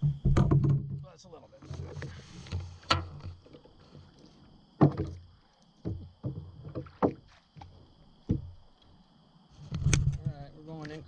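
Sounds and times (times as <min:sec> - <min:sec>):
hollow knocks on kayak hull: 0:00.0 - 0:01.0, 0:04.8 - 0:08.6.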